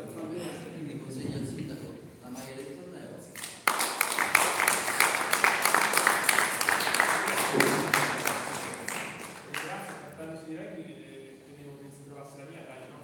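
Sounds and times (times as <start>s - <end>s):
audience applauding: 3.4s - 10.2s.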